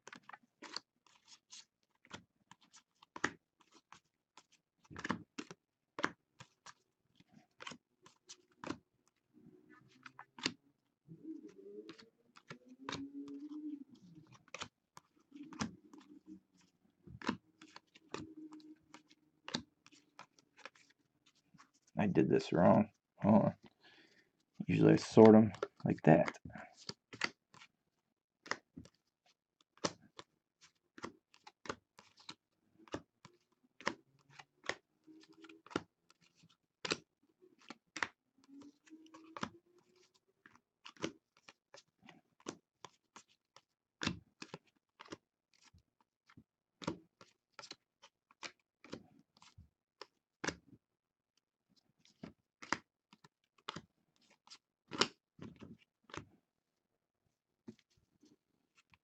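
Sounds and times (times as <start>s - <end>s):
cards snapping and tapping: 38.8s - 41.6s, 52.1s - 53.8s, 54.9s - 56.2s.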